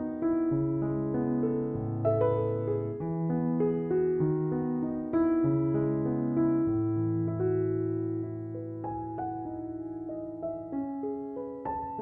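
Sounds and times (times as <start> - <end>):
slow keyboard melody: 0.0 - 12.0.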